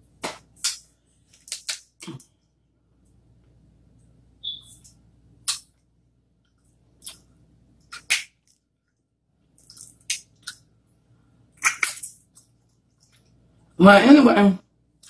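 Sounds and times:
crab legs cracking: 0.2 - 2.2, 7.9 - 8.6.

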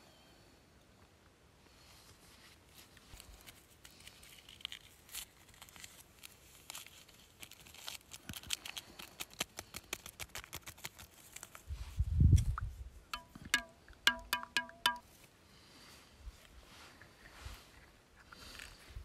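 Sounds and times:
paper sachet tearing: 3.9 - 11.6
powder ticking into metal mug: 13.2 - 15.0.

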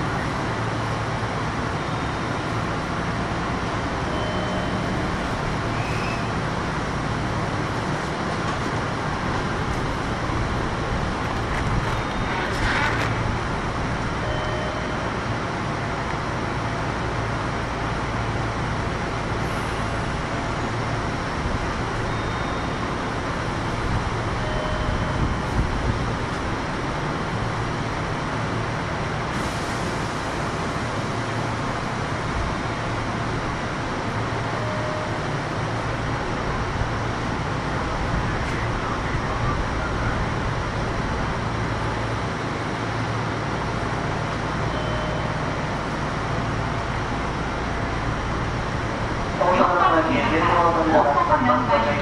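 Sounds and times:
train wheels and motors rumbling: 0.0 - 52.0.

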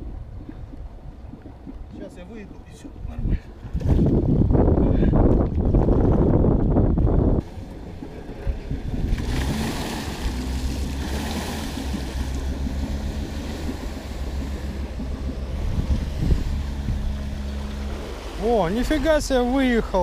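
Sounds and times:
loud low rumble: 0.0 - 20.0
water splashing from wheels: 5.2 - 20.0
car engine humming: 6.8 - 20.0.

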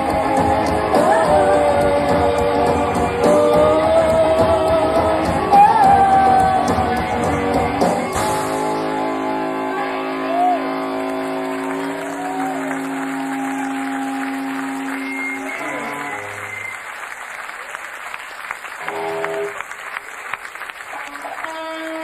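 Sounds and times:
rock band playing: 0.0 - 16.7, 18.8 - 19.6
audience applause: 9.6 - 22.0.

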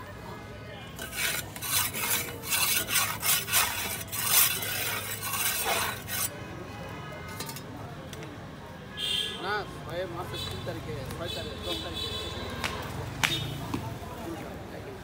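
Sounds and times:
metal spatula scraping griddle: 1.0 - 6.4, 7.3 - 7.7.

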